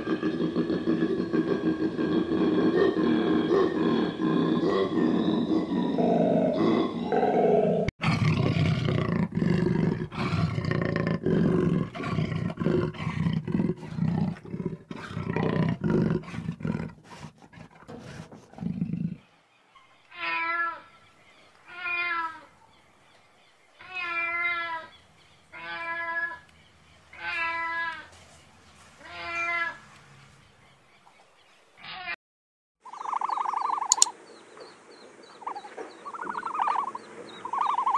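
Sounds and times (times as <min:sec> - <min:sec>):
jaguar roaring grunts: 0:00.0 - 0:19.2
lemur calling: 0:32.8 - 0:37.9.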